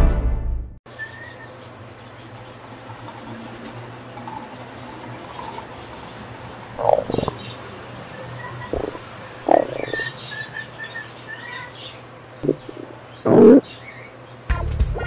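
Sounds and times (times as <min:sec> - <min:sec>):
stomach rumbling and gurgling: 0:06.8 - 0:07.4, 0:08.7 - 0:10.1, 0:12.4 - 0:13.6.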